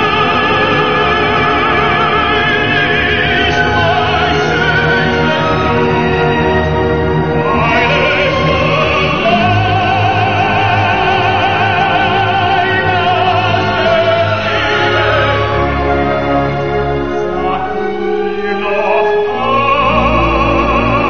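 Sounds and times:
instrumental accompaniment: 0.0 - 21.0
operatic singing with vibrato: 0.0 - 21.0.

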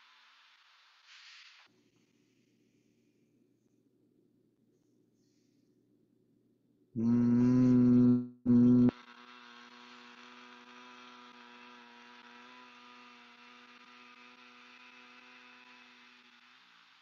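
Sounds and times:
man humming: 7.0 - 9.0.

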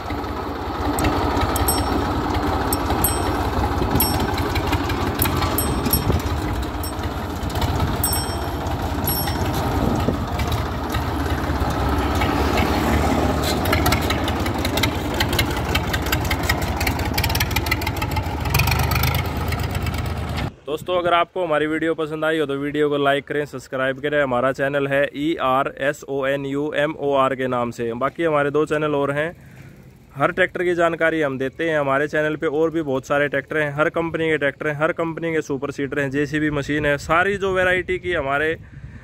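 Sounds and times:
tractor diesel engine running: 0.0 - 20.4.

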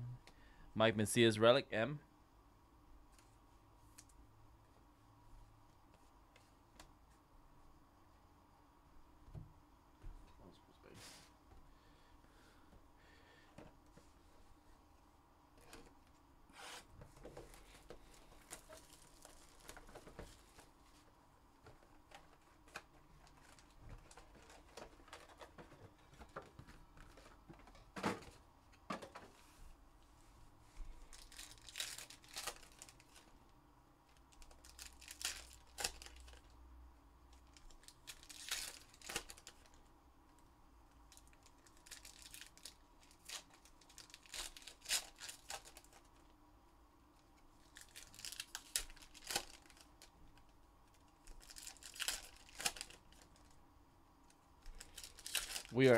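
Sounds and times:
wrappers crinkling: 18.1 - 20.7, 31.1 - 33.3, 34.2 - 36.5, 37.4 - 39.8, 41.1 - 46.3, 47.6 - 53.6, 54.6 - 55.9
card packs tearing open: 31.1 - 33.2, 34.3 - 36.5, 37.5 - 39.7, 41.1 - 46.1, 47.7 - 50.1, 51.3 - 53.3, 54.8 - 55.9.

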